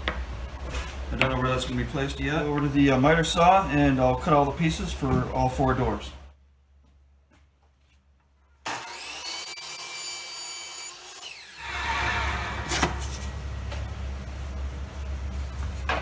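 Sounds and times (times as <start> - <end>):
miter saw cutting wood: 8.7 - 13.2.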